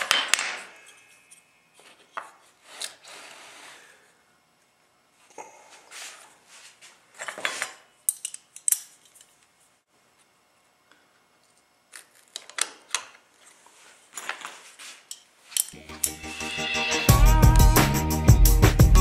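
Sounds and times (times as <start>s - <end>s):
handling scrapes: 0.7s - 4.0s, 13.4s - 15.8s.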